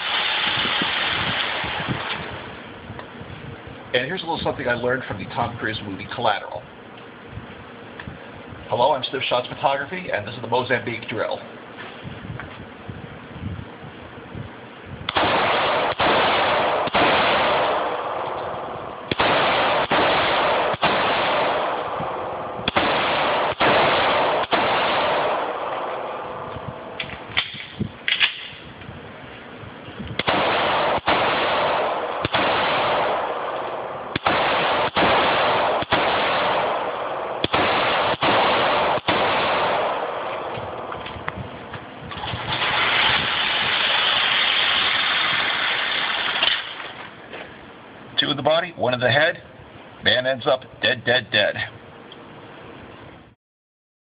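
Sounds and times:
pistol shots indoors: 0:15.1 - 0:26.8, 0:30.2 - 0:40.9.

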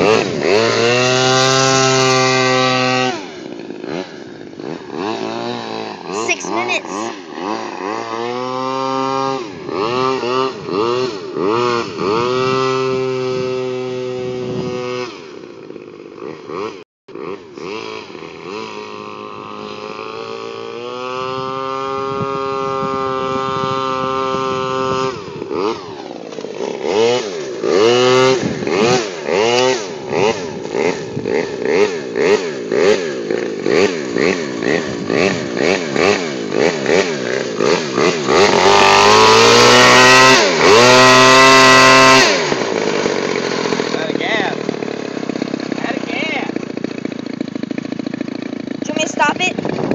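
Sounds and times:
model boat engine revving: 0:00.0 - 0:49.9.

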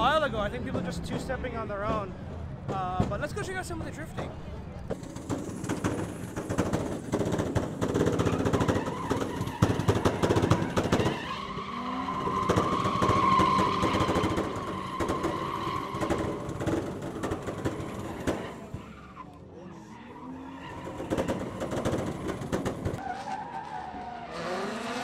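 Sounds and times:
car engine revving crackling: 0:04.9 - 0:19.0
tyre squeal: 0:08.0 - 0:25.0.

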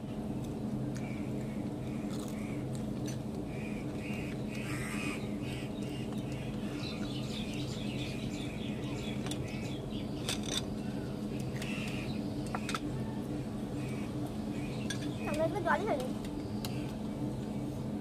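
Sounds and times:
low hum: 0:00.0 - 0:18.0
birds chirping: 0:03.4 - 0:17.7.

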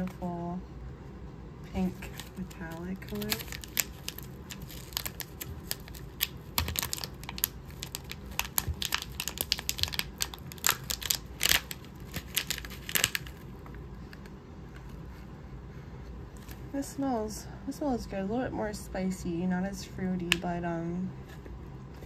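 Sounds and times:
crinkly packaging rustling: 0:01.8 - 0:15.1.

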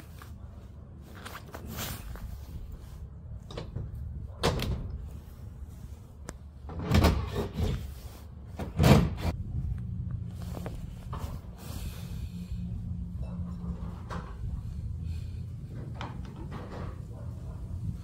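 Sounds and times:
garage door clunks and bangs: 0:06.7 - 0:07.7, 0:08.6 - 0:09.3.

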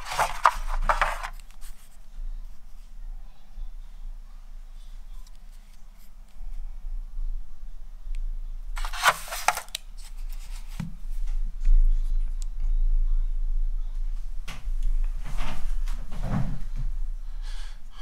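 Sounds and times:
packaging crinkling and rustling: 0:00.0 - 0:01.7, 0:08.8 - 0:10.7
steady low hum: 0:00.0 - 0:18.0
packaging clicks: 0:08.8 - 0:10.1.

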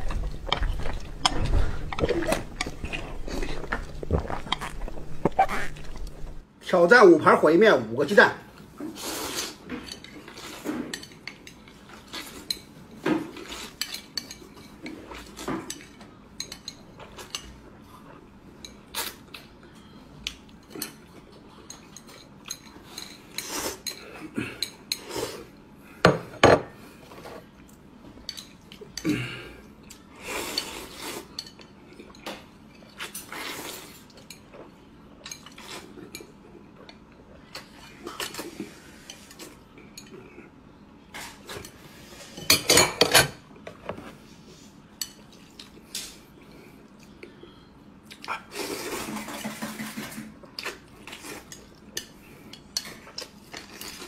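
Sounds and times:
chewing and mouth noises: 0:00.0 - 0:06.4.

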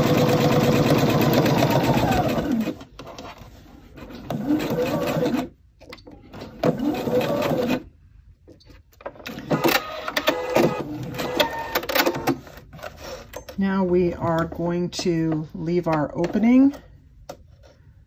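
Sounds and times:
sewing machine stitching: 0:00.0 - 0:02.8, 0:04.0 - 0:05.5, 0:06.3 - 0:07.8.

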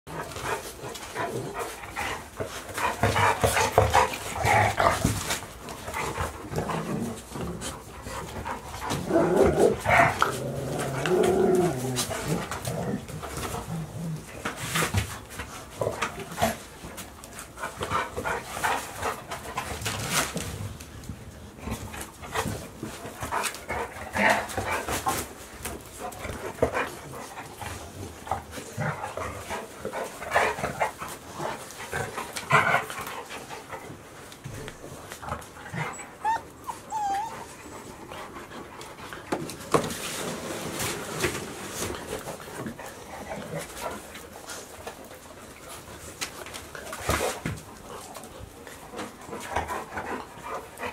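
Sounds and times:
dogs scuffling: 0:00.1 - 0:50.9
dog whining: 0:35.8 - 0:37.8
puppies yipping and whimpering: 0:35.9 - 0:37.8.

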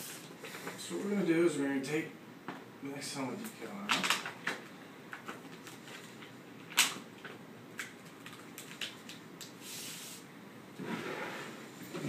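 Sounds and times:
vinyl peeling hiss: 0:00.0 - 0:01.3, 0:08.1 - 0:12.0
backing paper crackling: 0:05.2 - 0:09.2.

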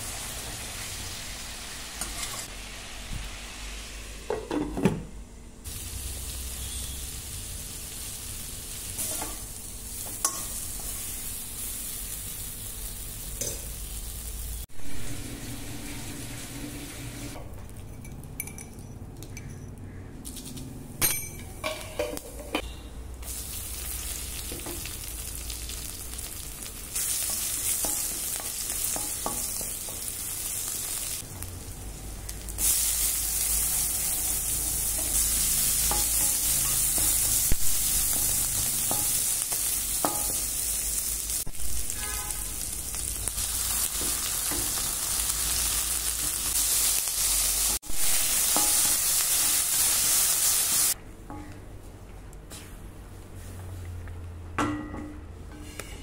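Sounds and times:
onion sizzling in hot oil: 0:00.0 - 0:04.3, 0:05.6 - 0:17.9, 0:23.2 - 0:51.0
spatula scraping against pan: 0:55.5 - 0:56.0.

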